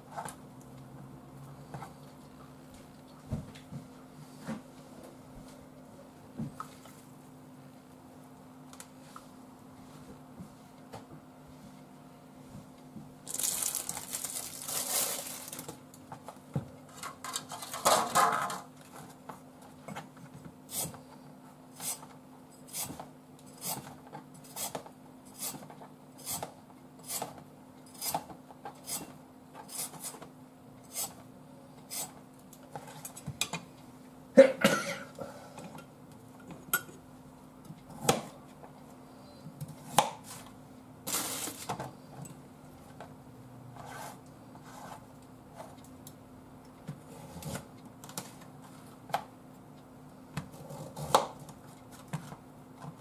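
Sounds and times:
plastic wrap rustling: 13.2 - 15.9, 41.1 - 41.8
peeler scraping carrot: 22.7 - 25.6, 27.9 - 29.1, 29.7 - 30.2, 30.9 - 31.2, 31.9 - 32.2.

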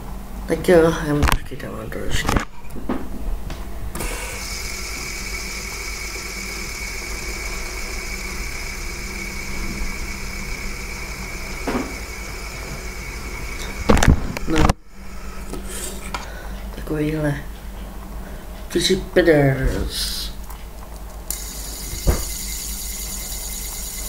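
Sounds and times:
fidget spinner whirring: 4.0 - 16.3, 20.4 - 24.0.

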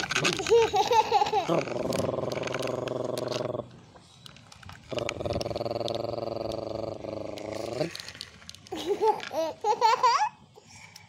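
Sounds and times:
person making engine noises: 0.0 - 3.8, 4.9 - 9.5.

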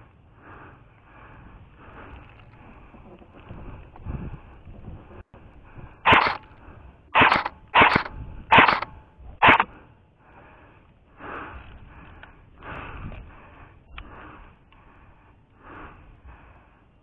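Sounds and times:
airsoft rifle shots: 6.1 - 6.4, 7.2 - 9.7.

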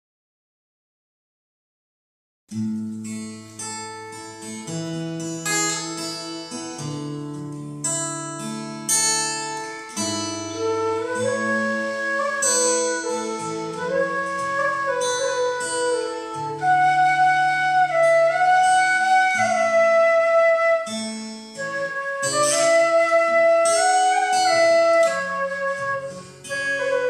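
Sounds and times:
acoustic guitar chords: 2.5 - 27.0
sliding flute melody: 10.0 - 27.0.

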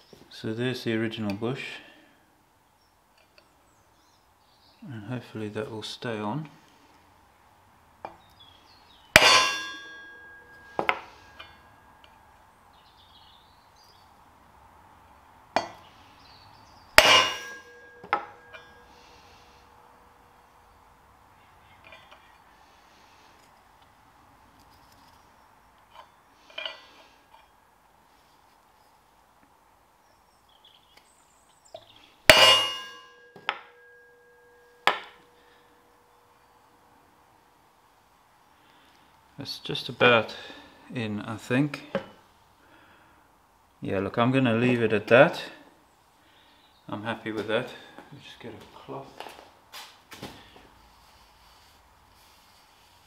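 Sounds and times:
heavy clanging mallet blows: 9.2 - 12.0, 17.0 - 19.1, 32.3 - 35.2.

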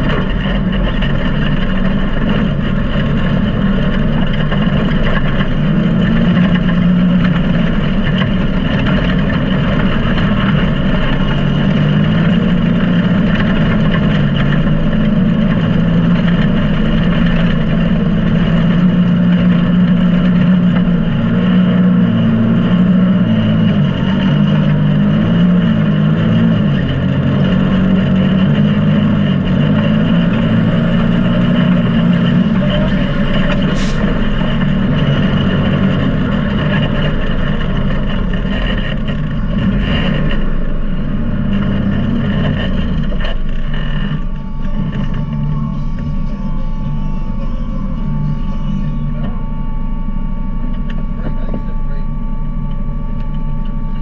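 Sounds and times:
engine revving under way: 18.4 - 44.3.

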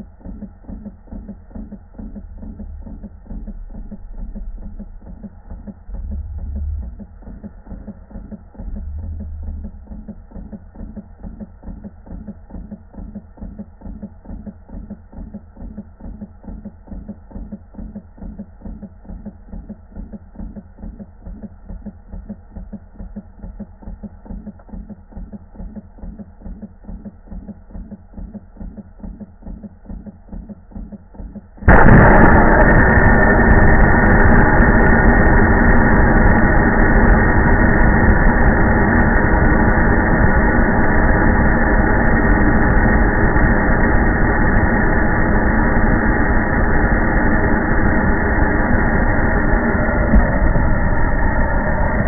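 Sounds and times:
steam engine beat: 0.0 - 52.0
escaping steam rushing: 31.7 - 52.0.

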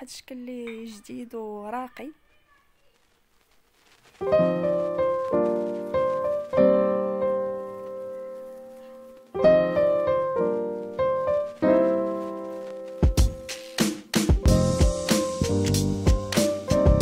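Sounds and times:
slow piano melody: 4.2 - 17.0.

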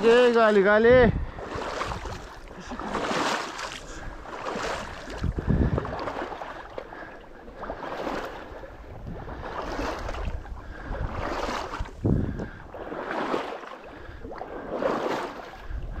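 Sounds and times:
footsteps sloshing through water: 0.0 - 16.0
wind rumbling on microphone: 0.0 - 16.0.

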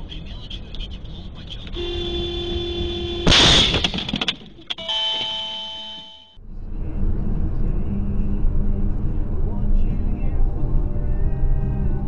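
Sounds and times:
car engine and road noise: 0.0 - 12.0
car horn: 1.7 - 3.8, 4.7 - 6.4
car collision crash: 3.2 - 4.7.

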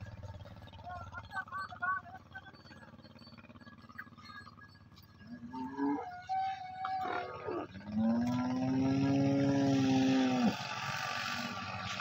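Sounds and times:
water buffalo bellowing: 2.8 - 12.0.

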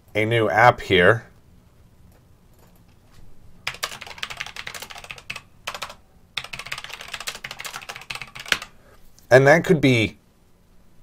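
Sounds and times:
fast typing on keyboard: 3.6 - 8.8.

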